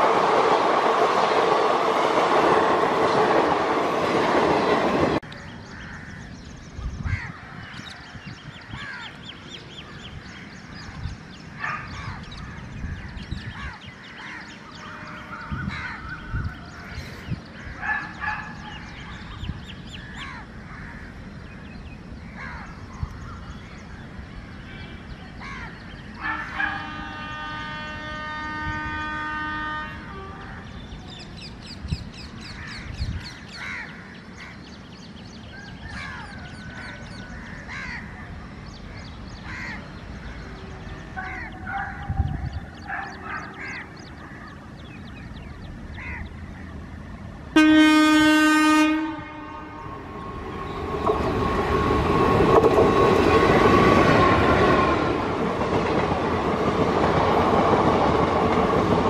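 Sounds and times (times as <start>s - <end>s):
crows cawing: 13.5s - 17.0s, 20.0s - 21.2s, 32.6s - 34.6s, 35.8s - 38.3s, 39.4s - 40.4s, 46.0s - 46.3s
train horn: 26.2s - 30.7s, 47.5s - 50.8s.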